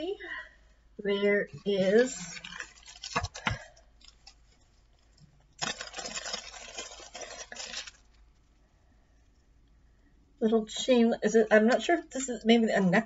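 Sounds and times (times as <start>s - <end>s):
packaging crinkling and rustling: 1.6s - 8.6s.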